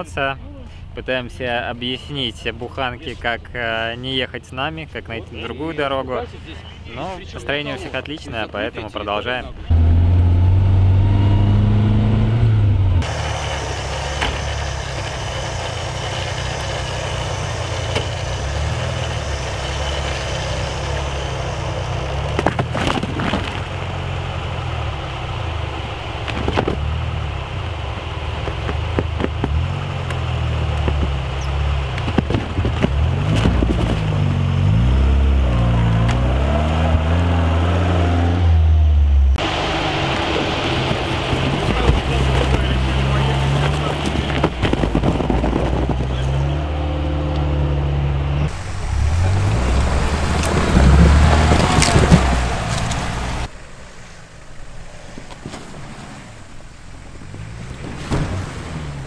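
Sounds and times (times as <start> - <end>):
off-road vehicle engine revving: 9.5 - 53.6, 56.2 - 59.0
vehicle knocking over rough ground: 22.1 - 24.0, 28.4 - 34.4, 40.2 - 46.6, 48.5 - 53.5.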